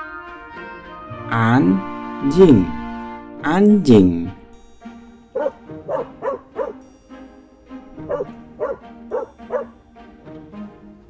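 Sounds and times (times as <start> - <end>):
light background music: 0.0 - 11.0
dog yapping: 5.4 - 6.8, 8.0 - 9.7.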